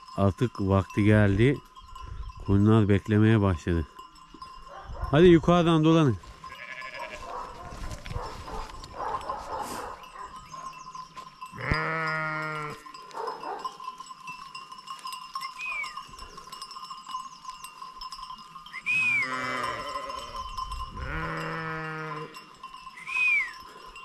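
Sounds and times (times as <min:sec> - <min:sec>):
flock bells ringing and clanking: 0:00.0 - 0:24.0
sheep bleating: 0:06.4 - 0:07.5, 0:11.6 - 0:12.8, 0:19.0 - 0:20.4, 0:21.0 - 0:22.4.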